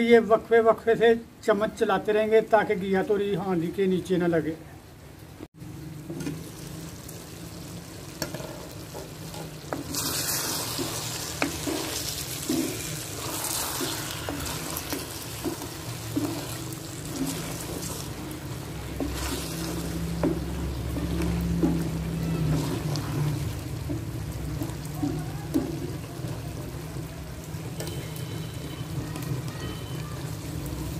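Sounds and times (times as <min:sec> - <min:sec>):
vegetable sizzling in a pot: 0:01.4 - 0:30.9
wooden spoon scraping a pot: 0:08.2 - 0:26.7.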